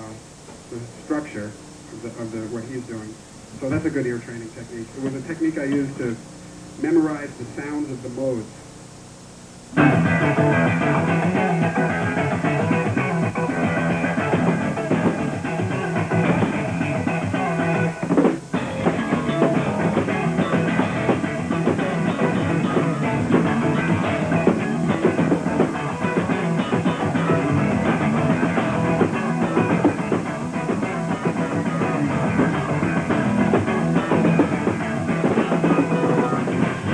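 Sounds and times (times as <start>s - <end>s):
drums: 0.0s - 36.9s
electric guitar lead lines: 0.0s - 36.9s
bass pedal note: 9.5s - 36.9s.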